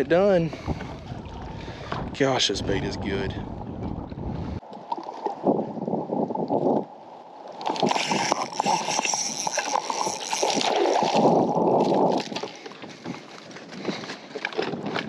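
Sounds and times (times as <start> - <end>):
lake water splashing: 4.6 - 5.9, 7.0 - 15.0.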